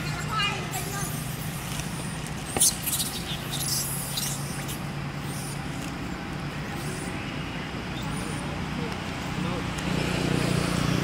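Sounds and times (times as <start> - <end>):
distant traffic hum: 0.0 - 11.0
macaques squeaking: 0.6 - 5.8.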